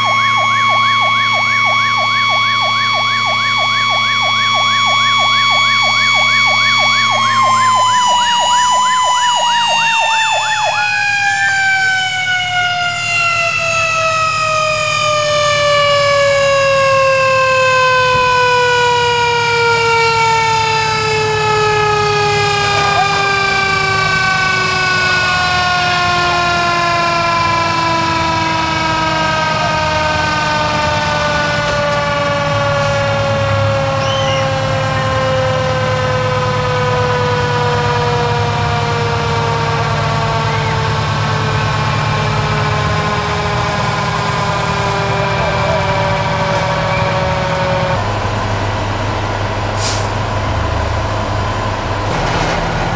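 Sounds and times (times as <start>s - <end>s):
electronic siren yelping: 0.0s - 48.0s
mechanical siren winding down: 0.0s - 49.2s
truck engine idling: 17.9s - 52.9s.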